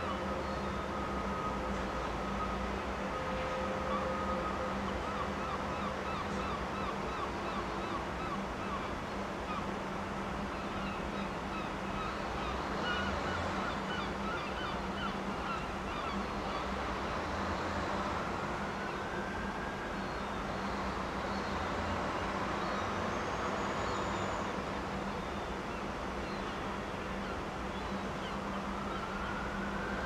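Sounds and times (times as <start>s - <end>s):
wind and water noise: 0.0s - 30.0s.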